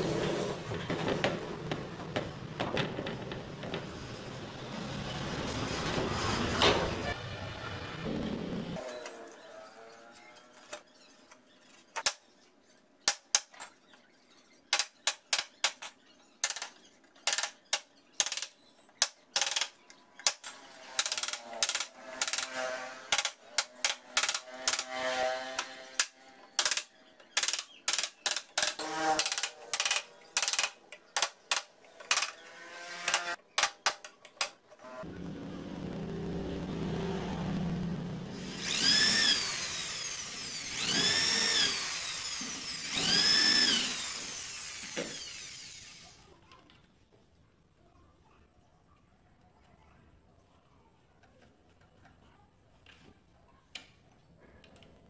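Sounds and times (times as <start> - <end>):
electric drill running: 38.3 - 46.2.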